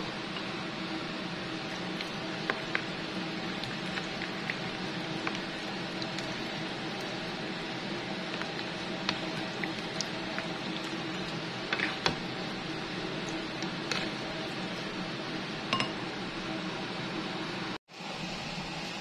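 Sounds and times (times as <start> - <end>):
background hiss and hum: 0.0 - 19.0
ladle stirring stew in pan: 1.5 - 15.2.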